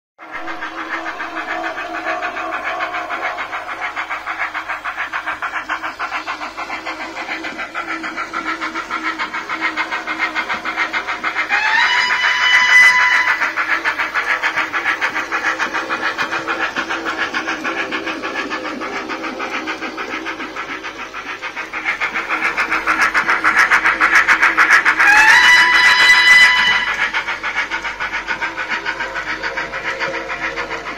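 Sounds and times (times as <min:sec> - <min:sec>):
train whistle: 0:00.2 - 0:05.4, 0:08.0 - 0:19.0, 0:24.6 - 0:27.4
steam locomotive chuffing: 0:00.2 - 0:30.9.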